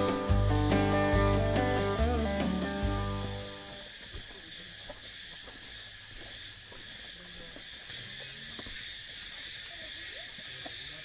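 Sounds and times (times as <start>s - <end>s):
insects droning: 0.0s - 11.0s
faint footsteps on trail: 2.9s - 11.0s.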